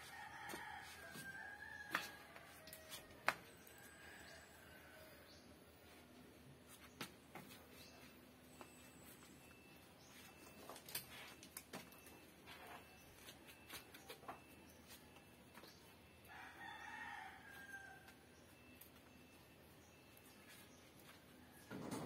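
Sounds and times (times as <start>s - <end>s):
rooster crowing: 16.3s - 18.2s
wooden scaffold knocks and creaks: 21.6s - 22.0s.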